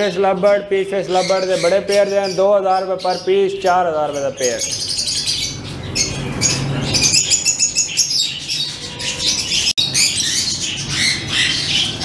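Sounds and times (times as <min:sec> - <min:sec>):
lovebirds chirping and squawking: 0:00.0 - 0:12.0.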